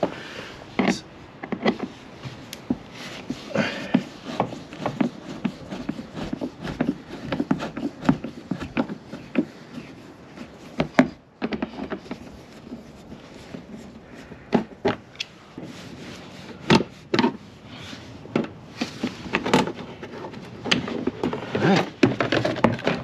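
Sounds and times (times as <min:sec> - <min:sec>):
screwdriver clicking and scraping plastic: 0:00.8 - 0:01.9, 0:03.3 - 0:12.3.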